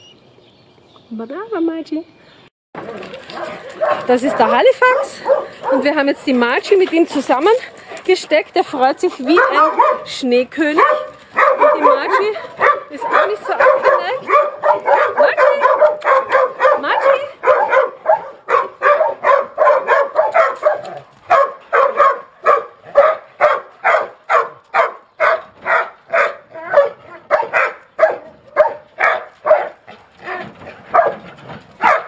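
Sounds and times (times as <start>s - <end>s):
dogs barking: 3.1s - 32.0s.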